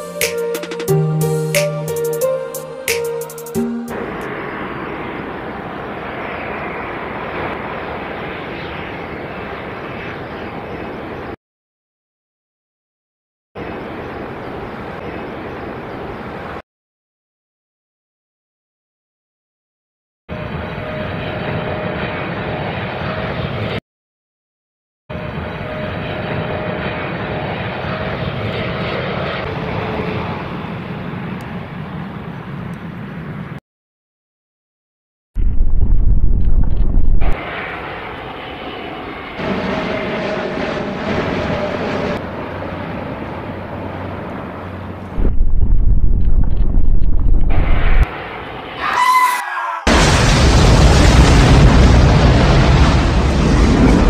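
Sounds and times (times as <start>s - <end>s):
jet engines roaring at takeoff: 0.0s - 11.4s, 13.6s - 16.6s, 20.3s - 23.8s, 25.1s - 33.6s, 36.3s - 46.4s, 47.0s - 49.2s, 49.9s - 54.0s.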